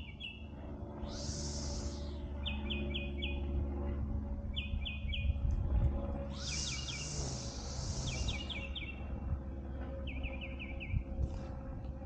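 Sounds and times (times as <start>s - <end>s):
high hiss: 1.0s - 2.1s, 6.3s - 8.4s
bird chirping: 1.1s - 3.5s, 6.3s - 9.1s.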